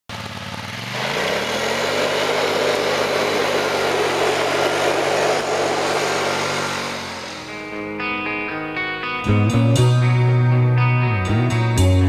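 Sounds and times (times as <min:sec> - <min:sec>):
motor spinning up and running: 0:00.2 - 0:07.7.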